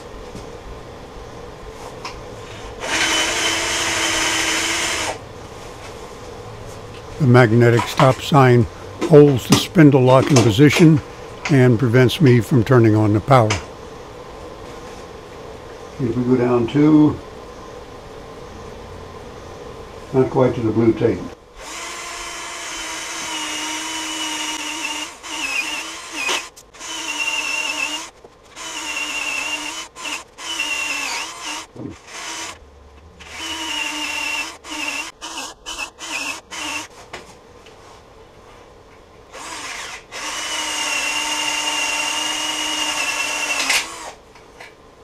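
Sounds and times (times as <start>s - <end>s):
cordless drill boring into wood: 2.8s - 5.2s, 21.6s - 32.6s, 33.2s - 36.9s, 39.3s - 44.2s.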